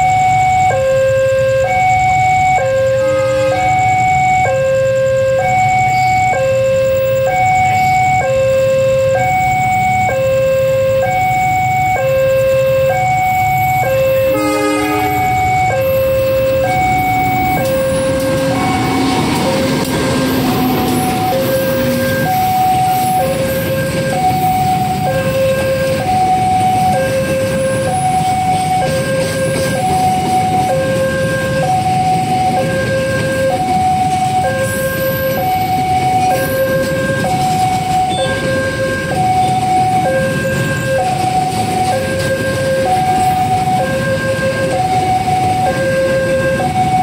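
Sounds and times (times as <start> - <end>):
two-tone crossing alarm: 0.0 - 47.0.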